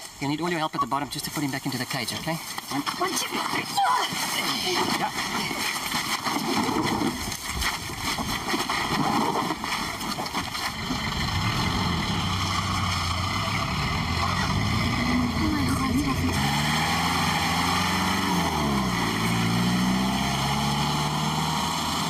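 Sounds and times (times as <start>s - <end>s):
engine rumbling: 9.0s - 22.0s
low engine hum: 10.4s - 22.0s.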